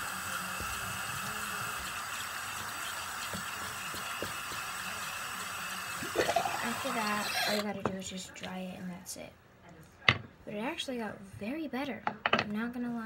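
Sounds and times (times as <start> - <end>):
tap water running: 0.0 - 7.7.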